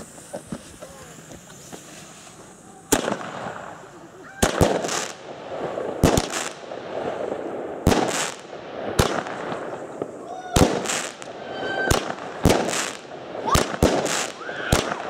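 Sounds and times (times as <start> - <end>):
firework hissing trail: 0.0 - 15.0
firework launch bangs: 0.0 - 15.0.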